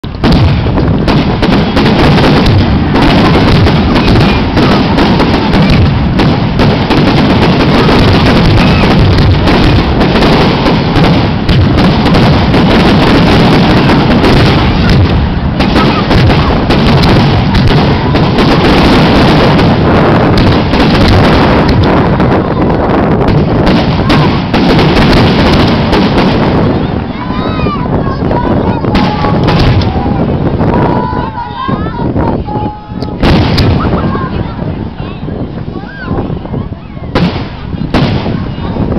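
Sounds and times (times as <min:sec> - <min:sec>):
fireworks bangs and crackling: 0:00.0 - 0:38.9.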